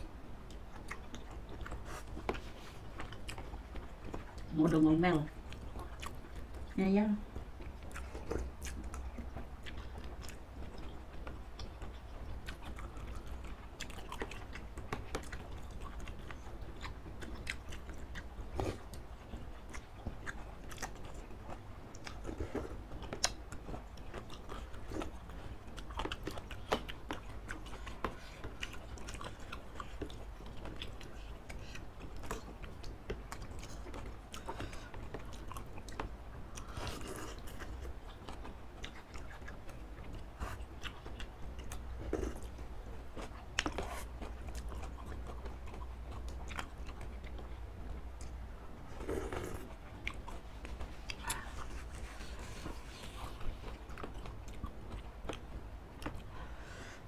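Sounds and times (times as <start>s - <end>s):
chewing: 0.4s - 57.0s
slurping noodles and broth: 48.9s - 49.7s.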